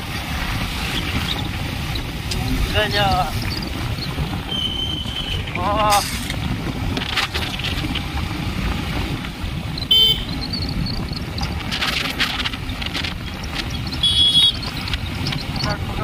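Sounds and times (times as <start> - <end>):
motorcycle engine rumble: 0.0 - 16.0
high-pitched horn beeps: 9.9 - 10.4, 14.0 - 14.6.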